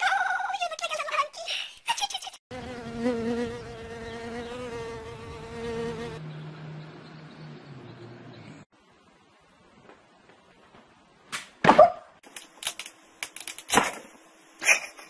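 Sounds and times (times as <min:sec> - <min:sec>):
insect buzzing: 0:02.5 - 0:06.2.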